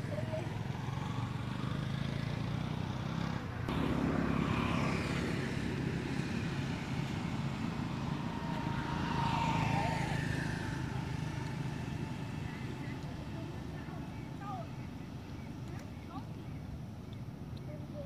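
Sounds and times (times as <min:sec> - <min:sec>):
low motor drone: 0:03.4 - 0:17.6
thin whine: 0:03.7 - 0:14.7.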